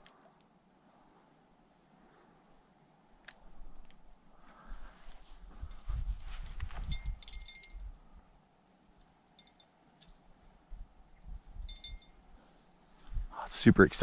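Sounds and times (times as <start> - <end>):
fishing rod bell jingling: 5.7 - 7.8, 9.4 - 9.7, 11.6 - 12.2.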